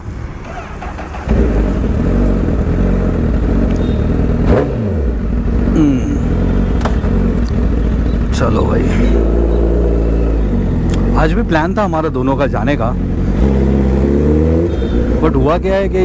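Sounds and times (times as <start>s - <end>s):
motorcycle engine idling: 0.3s - 13.4s.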